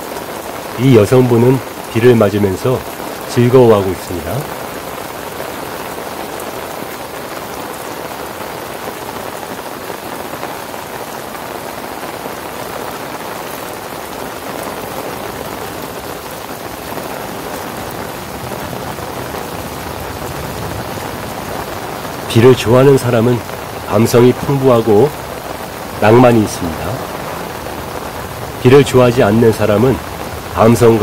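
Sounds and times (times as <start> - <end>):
heavy rain: 0.0 - 31.0.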